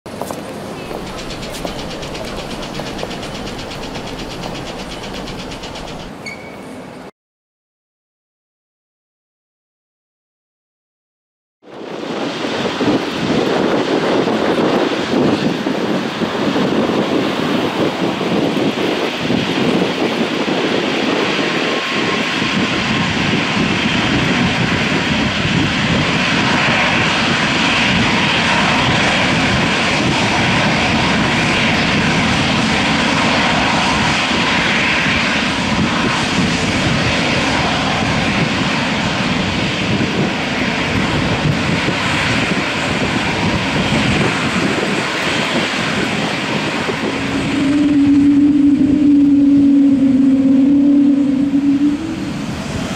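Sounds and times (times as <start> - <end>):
jet engine whine: 0.1 - 7.1, 11.6 - 52.9.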